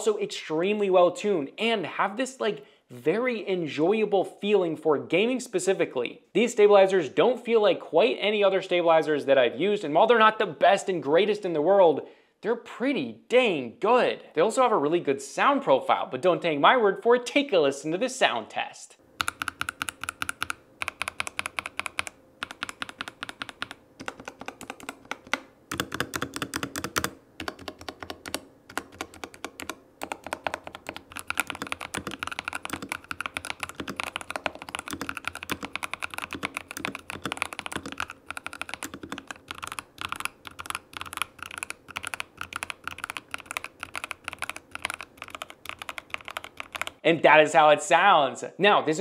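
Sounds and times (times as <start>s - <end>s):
mechanical keyboard typing: 19.2s - 47.0s.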